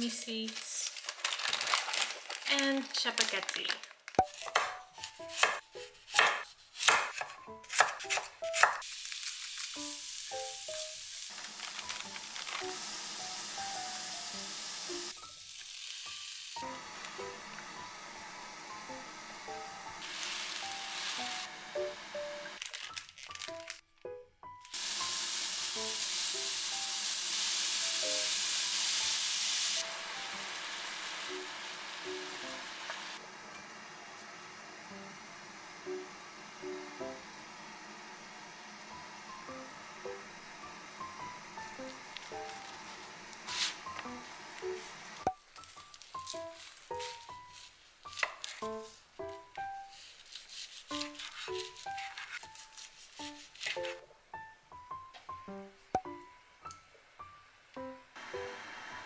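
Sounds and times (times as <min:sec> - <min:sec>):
knife chopping on wooden board: 0:04.2 - 0:08.8
carrots sizzling in a pan: 0:08.8 - 0:22.6, 0:24.7 - 0:33.2.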